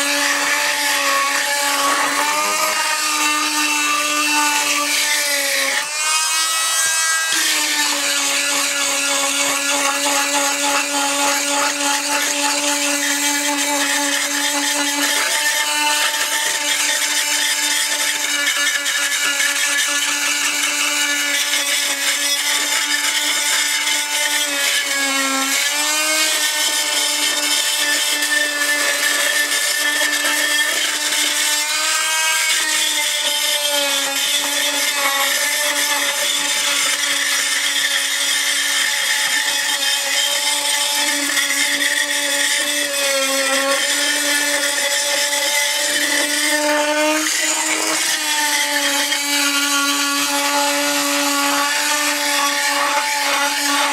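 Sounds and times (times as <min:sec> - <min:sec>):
blade scraping grout: 0:00.0 - 0:53.9.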